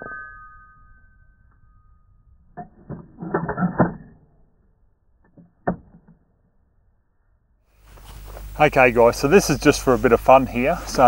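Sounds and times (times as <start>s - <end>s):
ringing tone: 0.0s - 2.7s.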